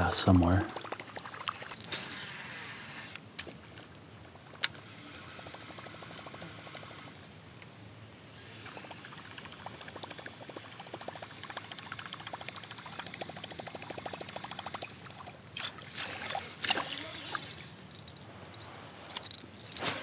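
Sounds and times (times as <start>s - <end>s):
water splashing: 0.0s - 2.2s, 8.7s - 20.0s
fishing reel ticking: 4.6s - 7.2s, 8.3s - 15.3s, 16.3s - 20.0s.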